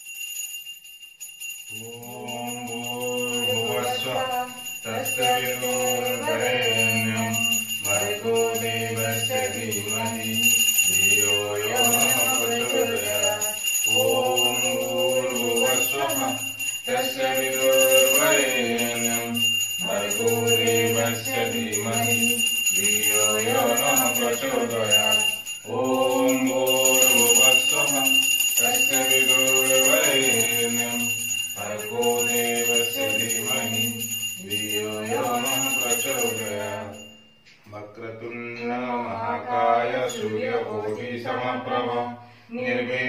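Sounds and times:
bell ringing: 0.0 - 37.6.

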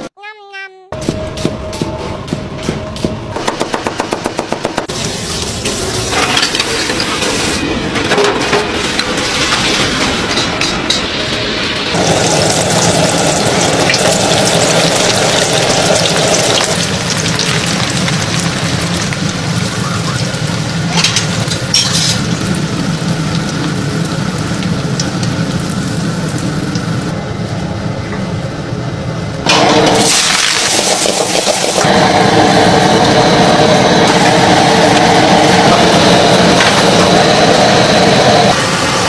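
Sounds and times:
prawns deep-frying in oil: 11.9 - 27.1, 29.5 - 32.3.

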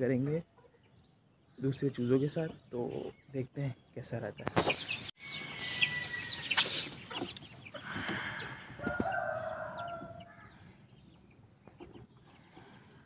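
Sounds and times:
chicks peeping: 0.1 - 13.0
adult chicken calling: 5.2 - 10.8.

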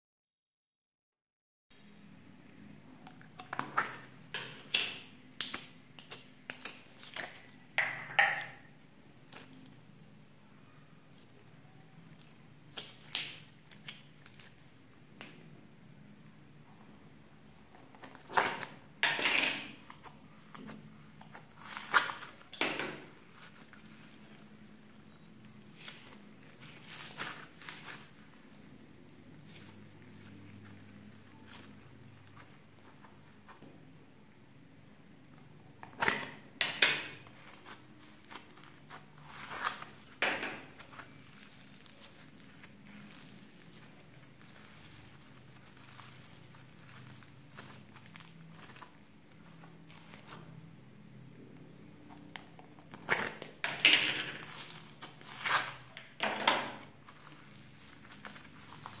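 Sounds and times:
plastic tub crinkling snaps: 3.0 - 9.8, 12.0 - 15.4
squishy slime handling: 3.0 - 15.4, 19.6 - 33.6, 35.8 - 50.8, 54.3 - 59.0
foam beads crackling: 37.5 - 50.3, 57.0 - 59.0.

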